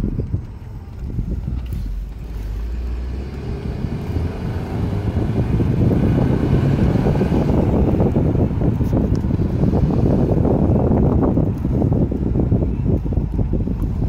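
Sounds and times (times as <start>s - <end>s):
car engine: 0.0s - 14.0s
tyre noise on road: 0.0s - 14.0s
wind noise: 0.0s - 14.0s.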